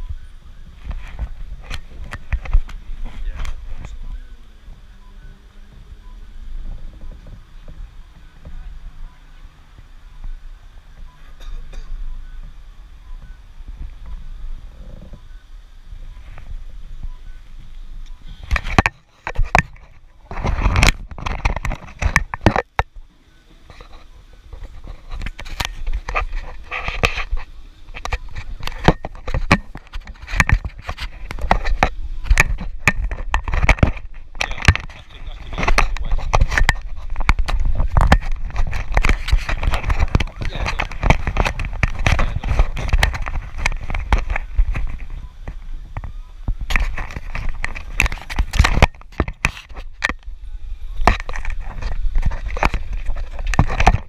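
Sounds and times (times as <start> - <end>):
clicks and rustles: 0.0 - 4.8, 16.2 - 50.4, 51.0 - 54.0
fingers rubbing and knocking camera: 0.7 - 4.1, 18.1 - 22.9, 23.6 - 50.3, 51.0 - 54.0.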